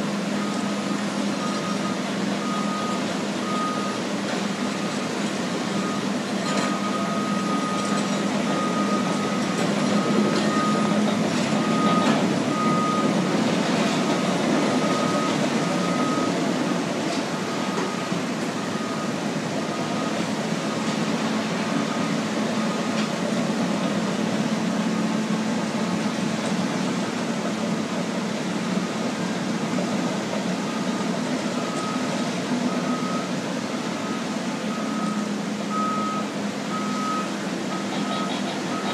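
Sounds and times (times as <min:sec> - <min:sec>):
diesel engines humming: 0:00.0 - 0:38.9
backup alarm beeping: 0:05.8 - 0:13.2, 0:30.7 - 0:38.9.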